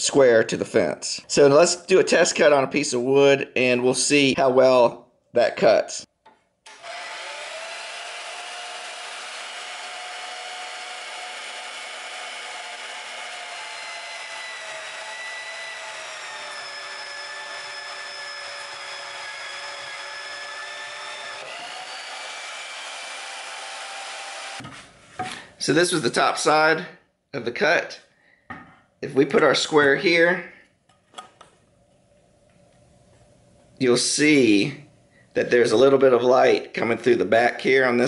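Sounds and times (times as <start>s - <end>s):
band saw cutting wood: 6.7s - 24.7s.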